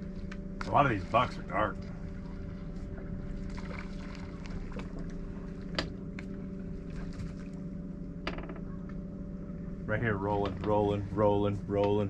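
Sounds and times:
outboard motor running: 0.0 - 12.0.

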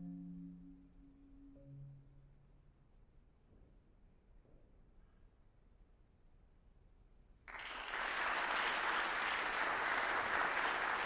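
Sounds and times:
audience applauding: 7.5 - 11.0.

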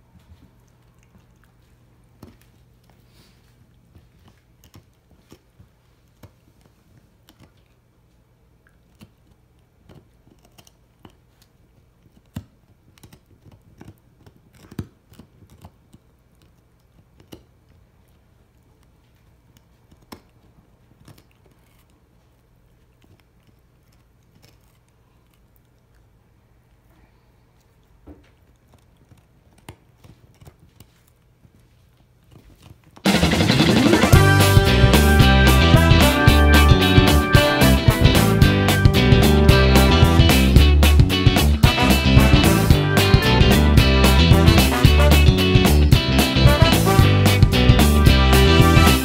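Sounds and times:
dog gnawing a hard chew: 0.1 - 26.9, 27.5 - 33.1
teeth crunching and clicking: 8.6 - 26.8, 27.6 - 31.6.

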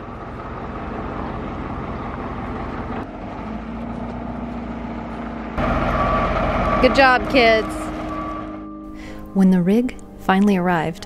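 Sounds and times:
forklift engine running: 0.0 - 8.8.

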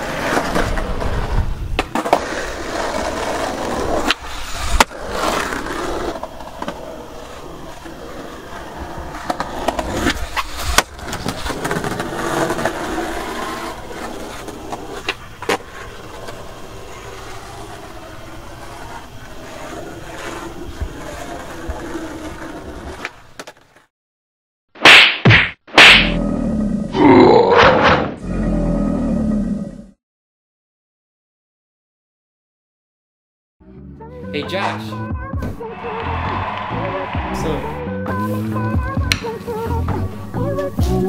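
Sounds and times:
skateboard wheels rolling on asphalt: 0.0 - 23.9, 34.9 - 41.0
skateboard clacks: 35.6 - 39.7.

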